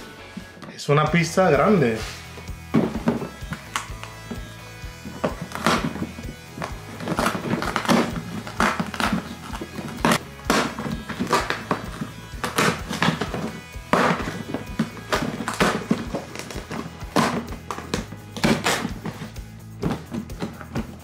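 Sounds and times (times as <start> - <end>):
background music: 0.0 - 21.0
cardboard flap ripping: 5.0 - 21.0.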